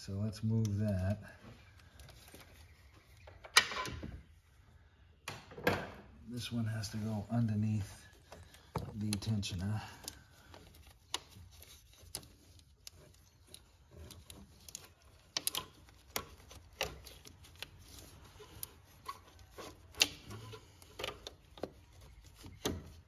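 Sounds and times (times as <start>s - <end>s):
belt clicking against engine metal: 8.2s - 23.0s.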